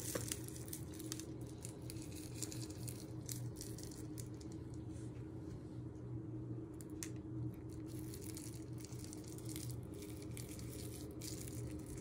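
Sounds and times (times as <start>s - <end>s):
sprinkles rattling in plastic pot: 0.0s - 4.6s, 7.7s - 12.0s
sprinkles pattering onto cake: 0.0s - 4.8s, 7.6s - 12.0s
steady low hum: 0.0s - 12.0s.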